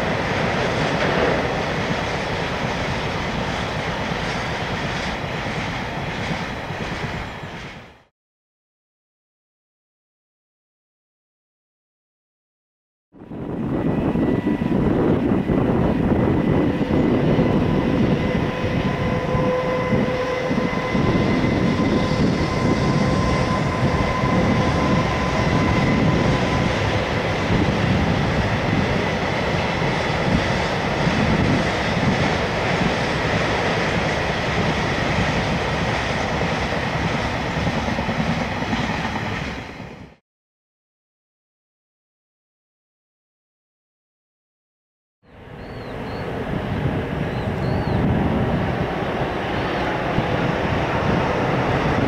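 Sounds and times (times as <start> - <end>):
train wheels clattering on rail: 0.0 - 8.1, 14.9 - 40.2.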